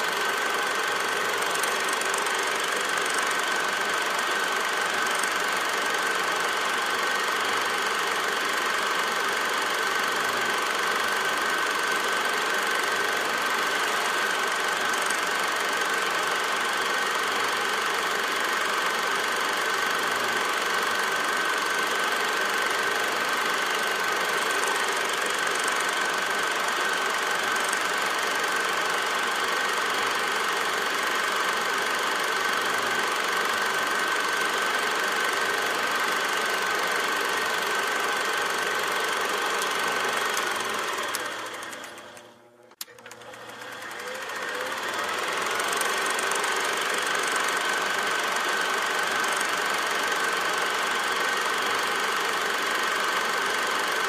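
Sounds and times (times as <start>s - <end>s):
machine running with high whine: 0.0s - 54.0s.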